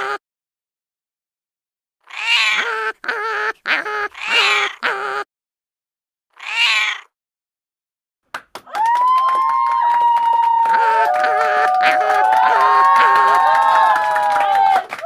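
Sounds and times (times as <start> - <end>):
wavering animal calls: 2.0 - 5.3, 6.4 - 7.1, 10.6 - 14.3.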